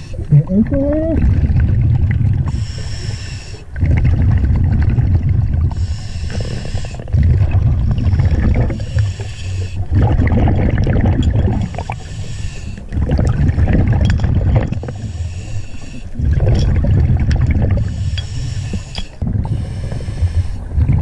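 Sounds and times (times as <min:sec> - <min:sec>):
bubbling exhaled air: 0:00.0 - 0:21.0
hissing regulator inhales: 0:02.5 - 0:03.7, 0:05.7 - 0:07.1, 0:08.2 - 0:09.9, 0:11.7 - 0:12.9, 0:14.9 - 0:16.2, 0:17.8 - 0:20.7.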